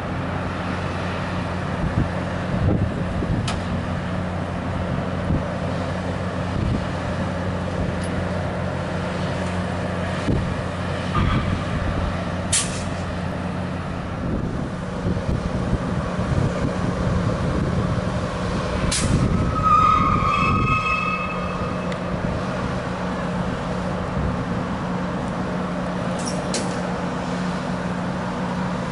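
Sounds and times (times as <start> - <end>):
diesel engines idling: 0.0 - 28.9
sharp air hisses: 12.5 - 13.0
whistling squeal: 19.5 - 21.9.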